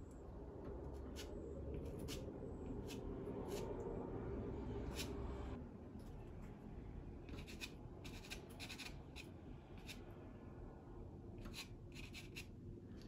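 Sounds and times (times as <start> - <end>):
pastel scratching on paper: 7.4 - 10.0, 11.5 - 12.5.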